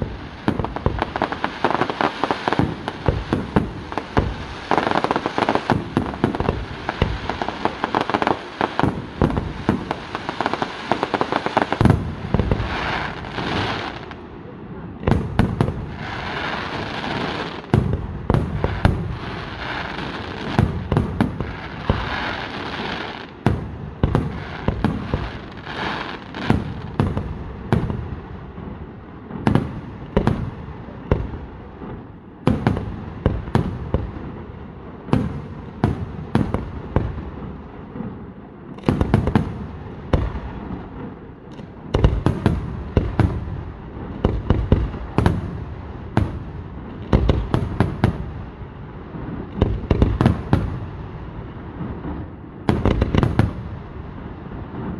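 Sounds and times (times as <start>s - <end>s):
firework shells booming: 0.0s - 14.2s, 38.8s - 48.3s
firework crackling: 0.0s - 54.9s.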